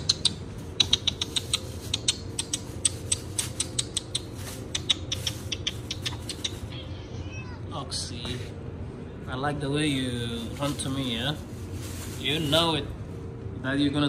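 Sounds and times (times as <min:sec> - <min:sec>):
person making kissing clicks: 0:00.0 - 0:06.7.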